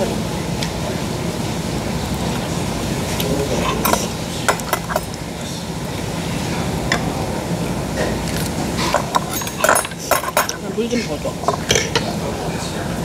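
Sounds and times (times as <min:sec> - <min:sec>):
chopsticks clinking on bowl: 0:03.2 - 0:05.2, 0:08.8 - 0:12.1.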